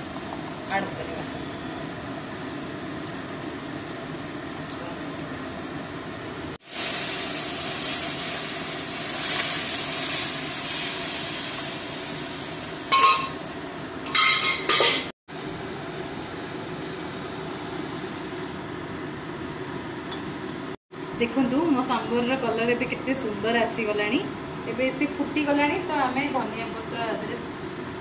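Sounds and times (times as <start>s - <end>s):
pot simmering with hiss: 0.0s - 15.1s
metal spoon clinking pan: 12.9s - 13.4s.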